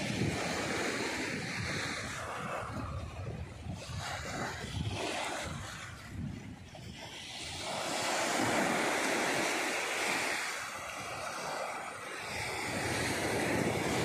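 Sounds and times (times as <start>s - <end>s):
small waves washing on beach: 0.0s - 14.0s.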